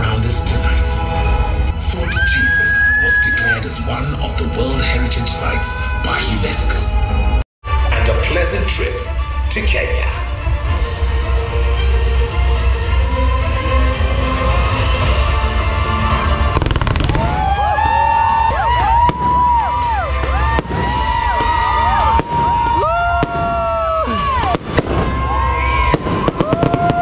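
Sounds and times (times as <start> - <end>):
fireworks banging: 16.4 - 27.0
fireworks whistling: 16.5 - 17.5, 19.1 - 27.0.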